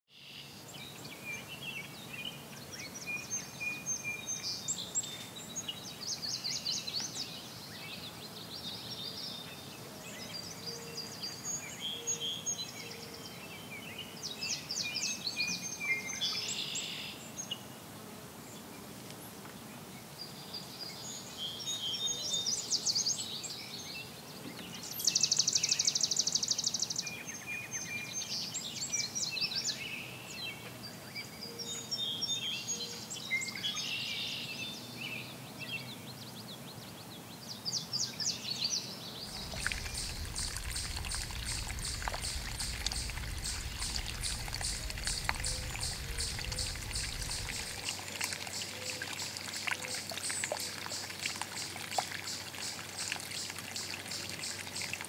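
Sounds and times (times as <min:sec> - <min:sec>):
songbirds singing: 0:19.9 - 0:55.0.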